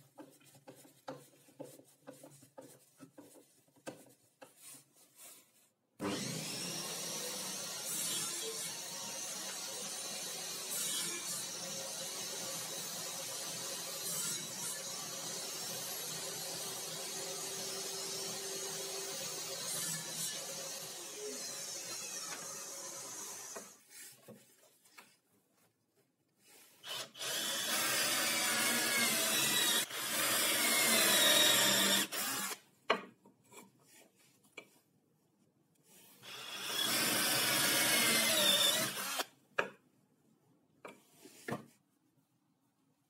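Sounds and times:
power drill boring into plywood: 26.8 - 32.6, 36.2 - 39.3.

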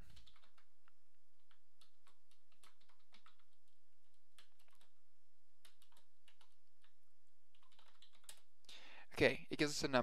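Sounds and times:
typing on computer keyboard: 0.0 - 0.7, 1.4 - 5.0, 5.6 - 8.5.

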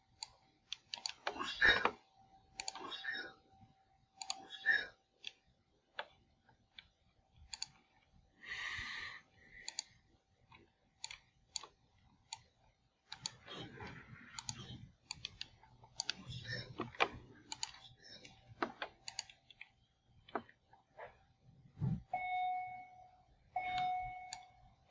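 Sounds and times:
computer mouse clicks: 0.1 - 2.0, 2.6 - 3.2, 4.2 - 8.1, 9.6 - 20.6
muffled noise: 21.0 - 22.1.

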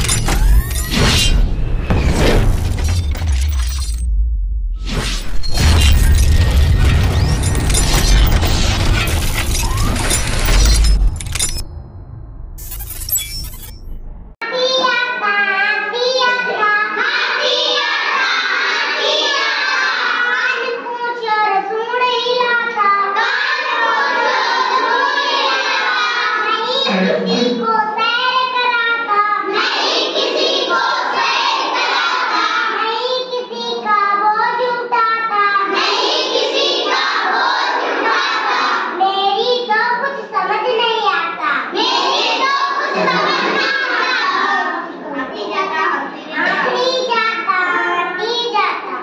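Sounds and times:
children singing a chant: 16.3 - 20.9, 22.9 - 27.6, 29.4 - 33.1, 35.5 - 39.0, 41.7 - 47.0.

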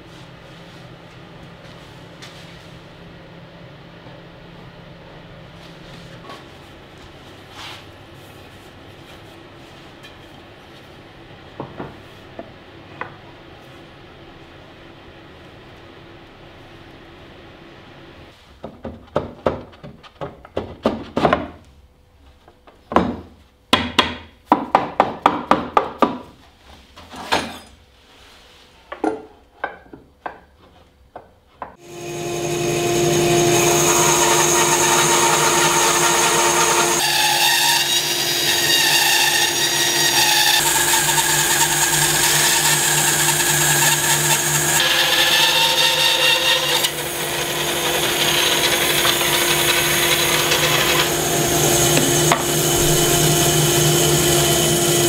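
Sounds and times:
electric power tool running: 31.8 - 37.0, 46.9 - 55.0
hand tool working wood: 44.6 - 55.0.

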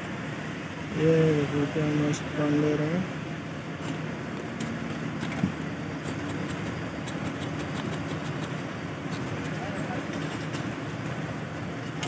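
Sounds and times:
street noise rumble: 0.0 - 12.0
dry filling ticking on leaves: 3.8 - 12.0.

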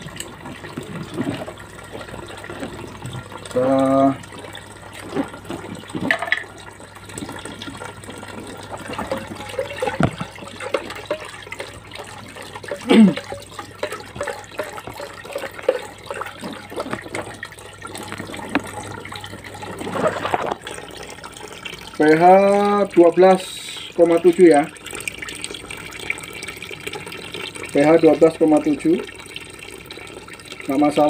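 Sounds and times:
water gurgle: 0.0 - 31.0
water sloshing in a bucket: 0.0 - 31.0.

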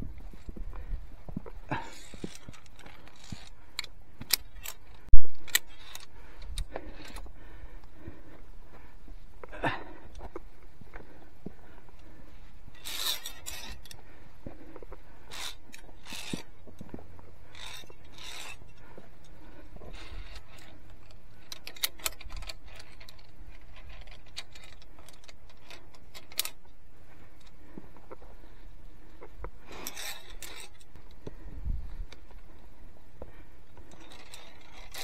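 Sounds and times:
hands and gear scraping rock: 0.0 - 7.3, 12.7 - 26.6, 29.2 - 32.4, 33.8 - 35.0.

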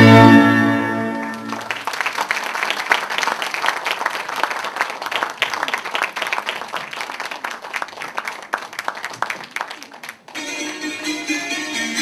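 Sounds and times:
audience applauding: 1.3 - 10.8.

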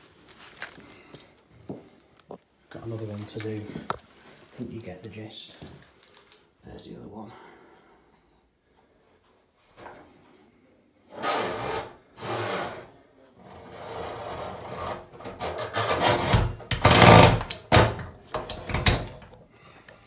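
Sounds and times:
hoses scraping on metal sink: 11.1 - 17.5.

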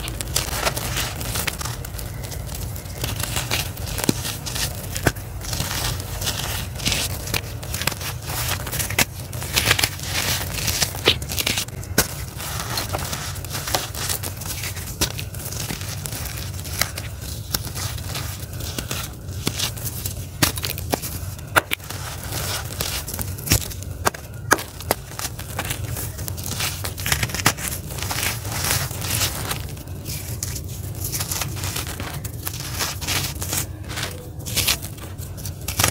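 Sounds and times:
charcoal crunching and snapping: 0.0 - 35.9.

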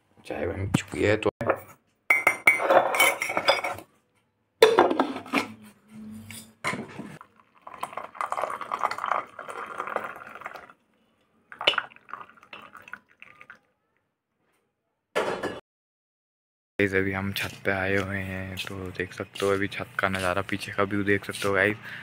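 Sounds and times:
tea splashing into mug: 7.2 - 10.8, 11.5 - 13.7.

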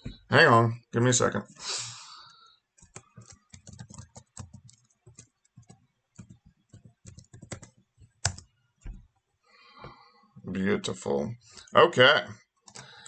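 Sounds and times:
typing on computer keyboard: 2.8 - 8.5, 12.7 - 13.0.

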